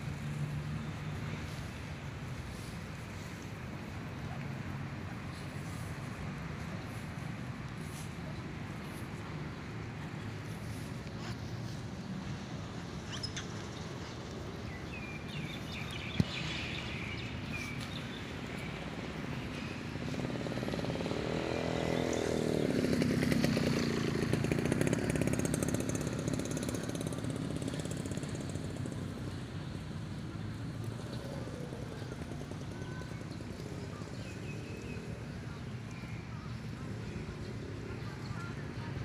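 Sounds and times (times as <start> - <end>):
outdoor background noise: 0.0 - 39.0
motor engine running: 19.9 - 39.0.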